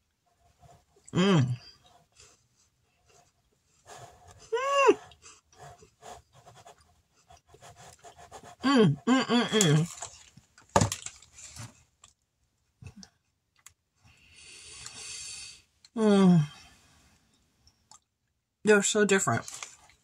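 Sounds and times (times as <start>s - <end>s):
person humming mmm: 1.1s - 1.8s, 8.6s - 9.9s.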